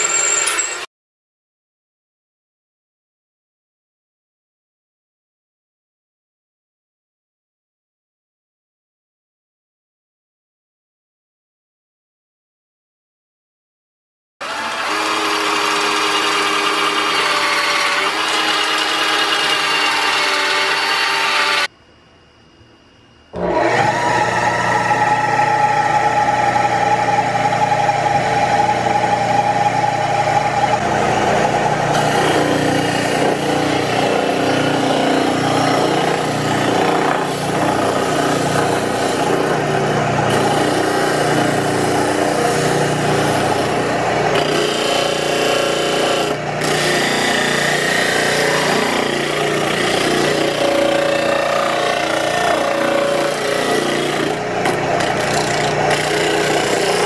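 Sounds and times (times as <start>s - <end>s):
cordless drill running: 14.4s - 21.7s, 30.7s - 57.0s
wood rubbing on sanding disc: 30.6s - 39.7s.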